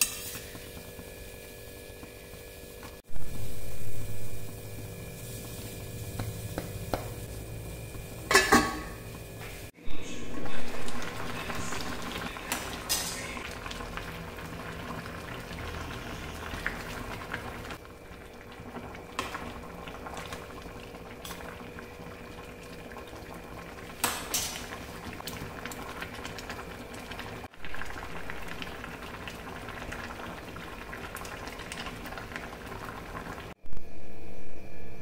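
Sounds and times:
curry bubbling in pot: 13.4 - 33.6.

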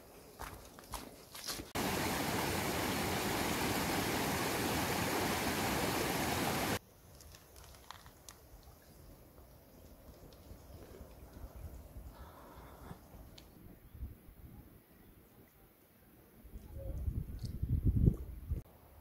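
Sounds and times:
footsteps on rocky trail: 0.3 - 1.8
stream flowing over stones: 1.8 - 6.8.

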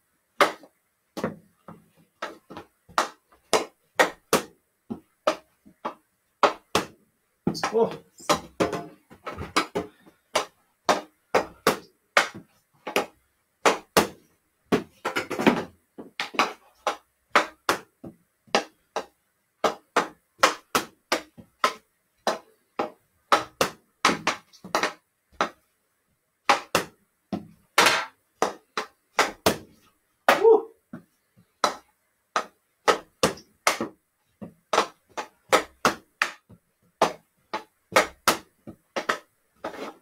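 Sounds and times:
ball rebounding off wall: 5.2 - 25.6
hockey stick striking ball: 7.6 - 13.1, 26.5 - 29.6, 34.8 - 40.0.

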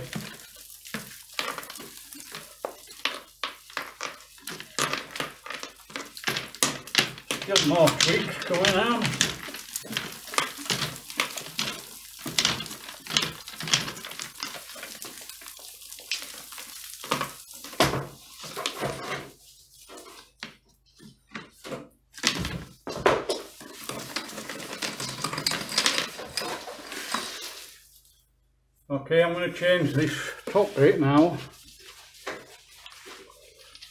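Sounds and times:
debris clattering down: 0.0 - 19.3, 22.2 - 27.8
rods scraping and knocking in chimney: 0.0 - 20.6, 21.4 - 27.9, 29.6 - 33.9.

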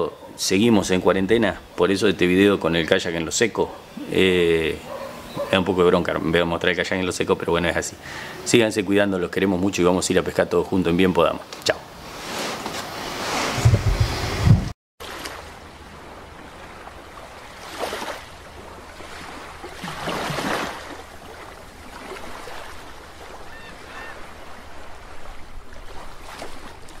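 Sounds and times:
watery rush: 11.2 - 27.0.

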